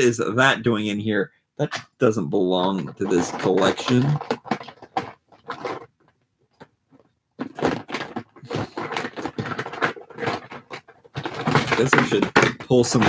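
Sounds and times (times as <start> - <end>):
plastic toy pieces clattering: 2.8 - 6.7, 7.4 - 13.0.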